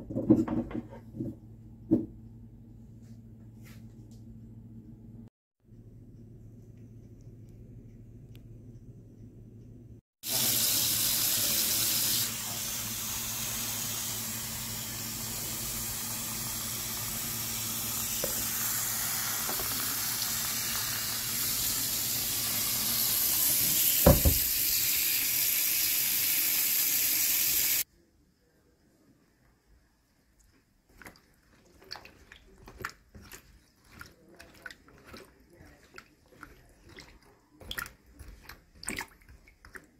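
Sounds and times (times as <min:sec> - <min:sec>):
water running: 0:10.2 - 0:27.9, 0:30.5 - 0:39.9.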